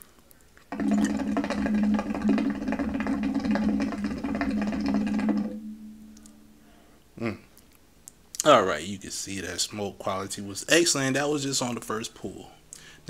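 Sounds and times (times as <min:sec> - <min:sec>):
hookah water bubbling: 0:00.6 - 0:06.5.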